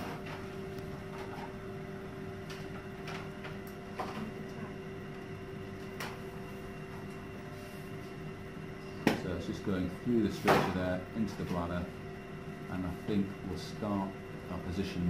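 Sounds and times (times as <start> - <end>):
electrical equipment hum: 0.0 - 15.0.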